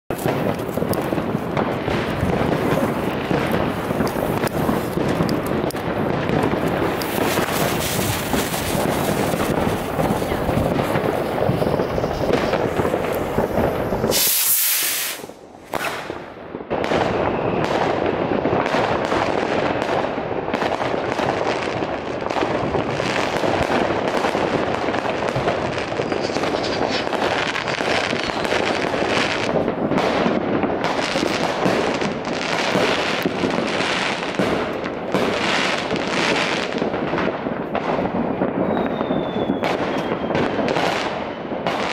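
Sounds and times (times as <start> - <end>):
fireworks banging and crackling: 0.1 - 41.9
burst of hiss: 14.0 - 16.0.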